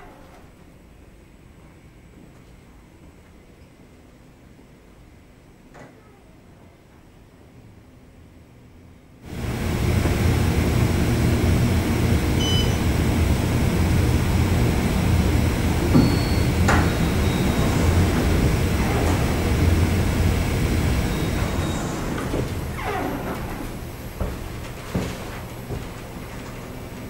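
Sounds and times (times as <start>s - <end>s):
elevator low rumble: 0.0s - 27.0s
elevator doors sliding open: 9.3s - 27.0s.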